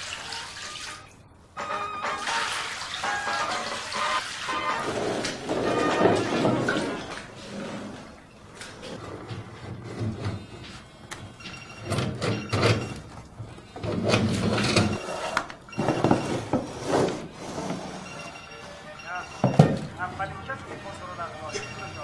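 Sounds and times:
plastic tub scraping across floor: 4.2 - 10.9, 13.4 - 18.4.

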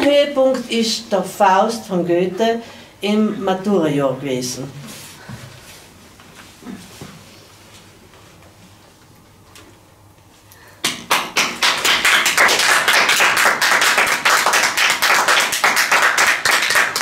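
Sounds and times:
people clapping: 10.8 - 17.0.

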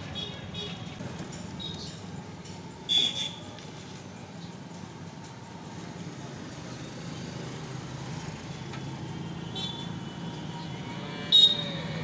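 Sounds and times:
vehicle horn toots: 11.3 - 11.8.

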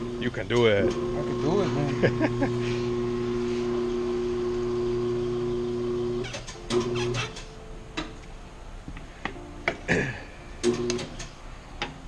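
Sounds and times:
turntable motor humming: 0.0 - 7.2.

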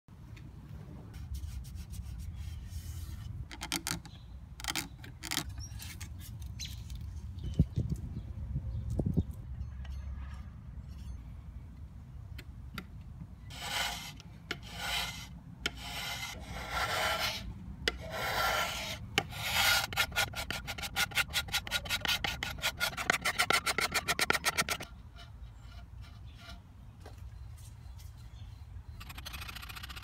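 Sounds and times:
sandpaper rubbing on wood: 13.5 - 17.4, 18.0 - 24.8.

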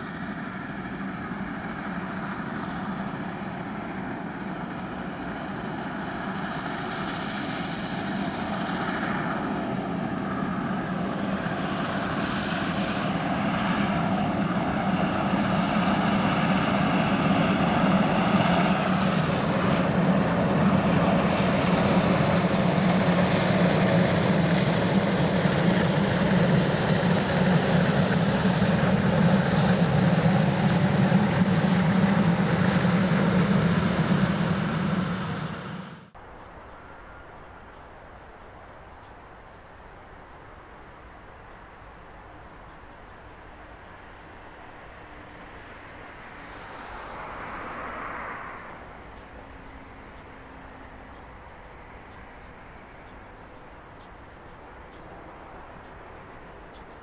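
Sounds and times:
steam locomotive exhaust: 0.0 - 39.6
train wagons rolling by: 0.0 - 57.0.

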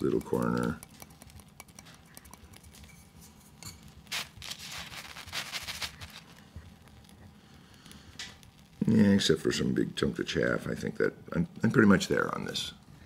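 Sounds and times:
cup scraping coffee grounds on paper: 0.0 - 7.2.

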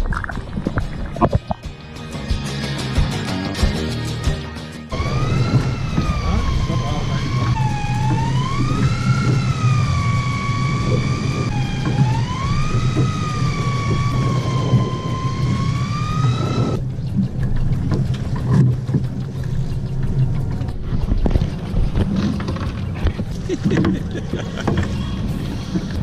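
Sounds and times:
fishing reel motor whining: 4.9 - 16.8
steady low hum: 4.9 - 26.0.

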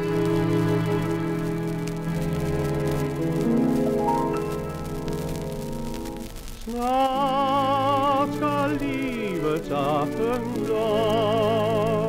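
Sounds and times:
orchestral dance-band music: 0.0 - 6.5
record surface crackle: 0.0 - 12.0.

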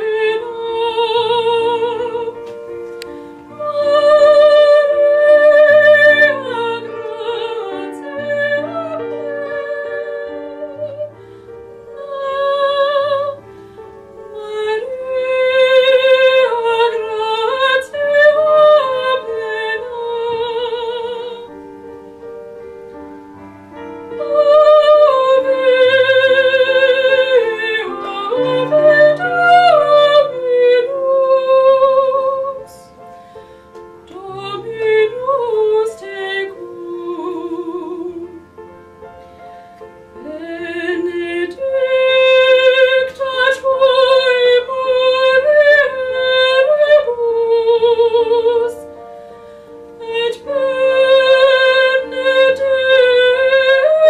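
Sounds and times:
woman singing operatically: 0.0 - 2.7, 3.4 - 11.2, 11.9 - 13.5, 14.1 - 21.5, 24.1 - 33.0, 34.0 - 38.6, 40.1 - 49.0, 49.9 - 54.0.

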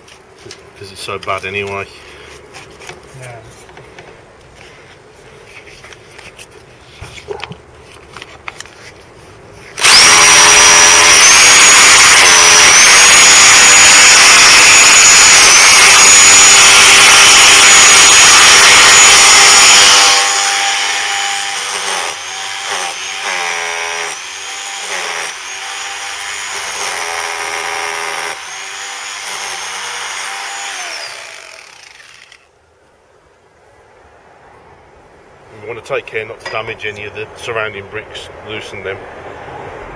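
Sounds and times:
faint scrapes: 1.9 - 9.8
hammer drill chiselling mortar: 9.8 - 32.4.

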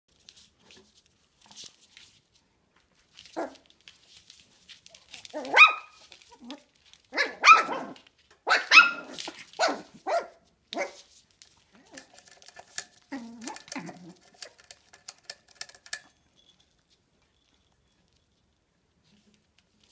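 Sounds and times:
puppies yapping: 7.2 - 10.9.

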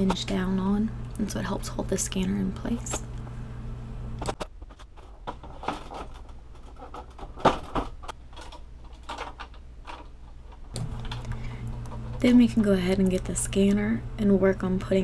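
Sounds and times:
plastic printer parts clicking: 4.2 - 11.3.

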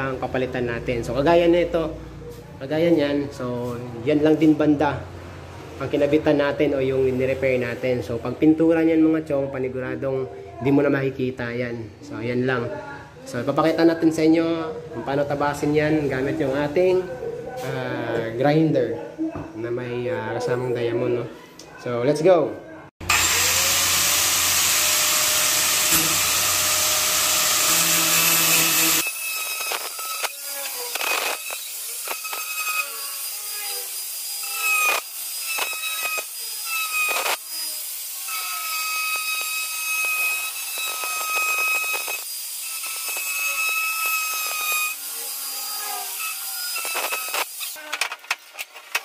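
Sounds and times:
angle grinder cutting board: 23.0 - 47.8.

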